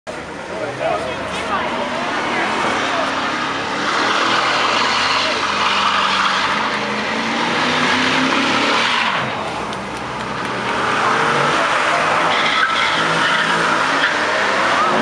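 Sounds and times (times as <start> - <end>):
car engine at high revs: 0.1 - 15.0
tyres squealing: 11.2 - 15.0.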